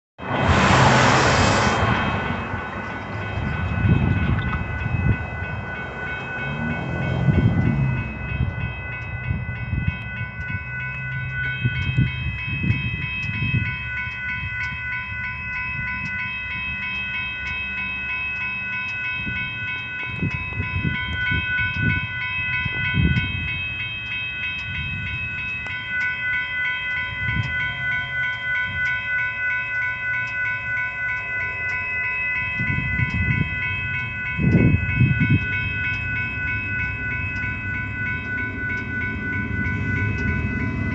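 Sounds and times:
low rumbles: 0.2s - 23.9s, 24.6s - 40.9s
railroad crossing bell ringing: 0.2s - 40.9s.

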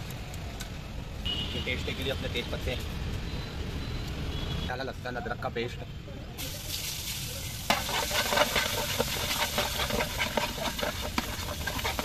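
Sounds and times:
paste frying in hot oil: 6.4s - 12.0s
metal spatula stirring: 7.6s - 12.0s.

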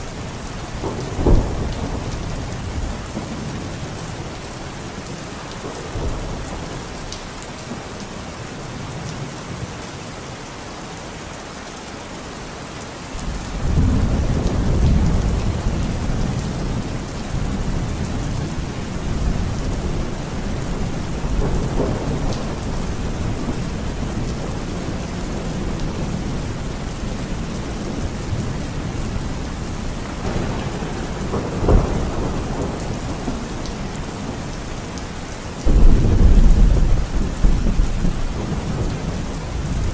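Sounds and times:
heavy rain pouring: 0.0s - 39.9s
thunder rumbling: 0.8s - 4.3s, 13.3s - 35.0s, 35.6s - 39.9s
sharp thunderclap: 30.2s - 33.4s, 35.6s - 39.1s.

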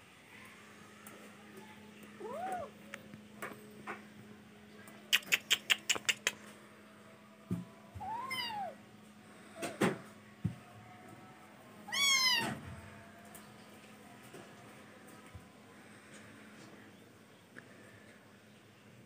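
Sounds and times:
kitten meowing: 8.0s - 8.8s, 11.9s - 12.6s.

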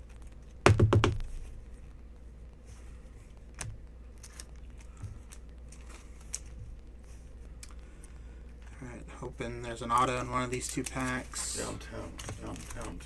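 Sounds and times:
low steady hum: 0.0s - 13.0s
cards clicking and crinkling: 3.5s - 6.6s, 9.8s - 13.0s.

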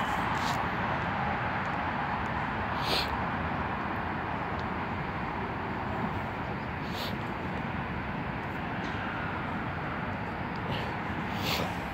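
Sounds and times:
distant vehicles rumbling: 0.0s - 11.9s.

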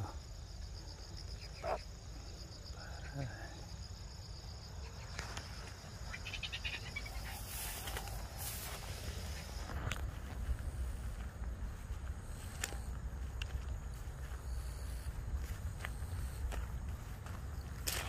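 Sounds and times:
insects trilling: 0.0s - 18.0s.

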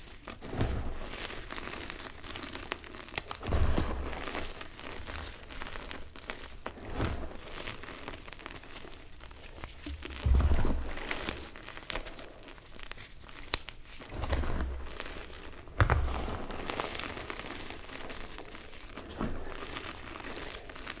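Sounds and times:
chalk crunching by hand: 0.0s - 21.0s
heavy thumps: 9.9s - 11.0s.

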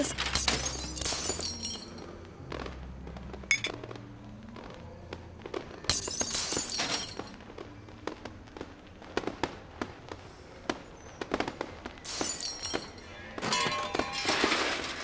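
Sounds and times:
music: 0.0s - 15.0s
crashing and breaking: 12.0s - 15.0s.

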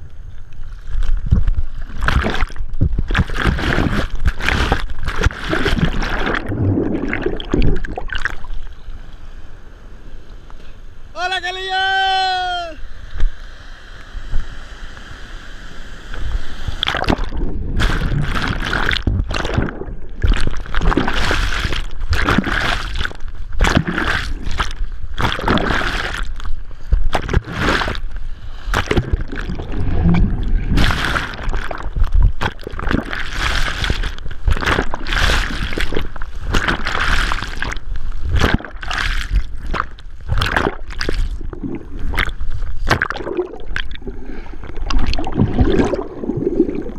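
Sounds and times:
deep rumble of surging water: 0.0s - 10.3s, 12.8s - 46.9s
surf water churning and splashing: 0.0s - 10.4s, 11.0s - 46.9s
water lapping: 1.6s - 8.7s, 16.8s - 46.9s.

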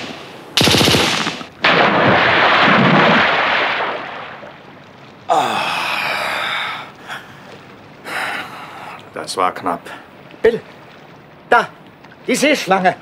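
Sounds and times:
submachine gun burst: 0.0s - 3.5s.

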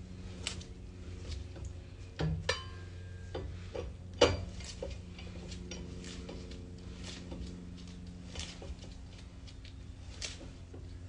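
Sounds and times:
steady low hum: 0.0s - 11.0s
lug nuts and wrench clinking: 2.2s - 3.5s.

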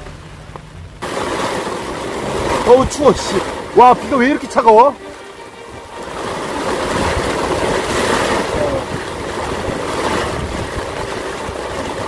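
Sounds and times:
heavy rain on umbrella: 0.0s - 12.0s
wind on microphone: 5.7s - 12.0s.

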